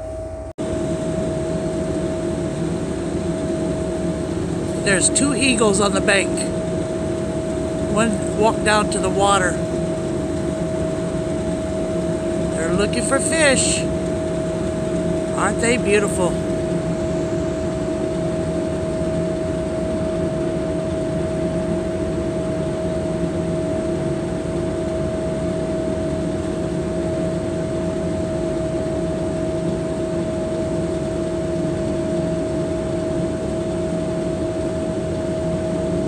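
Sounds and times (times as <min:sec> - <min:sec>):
boat engines droning: 0:00.0 - 0:22.6.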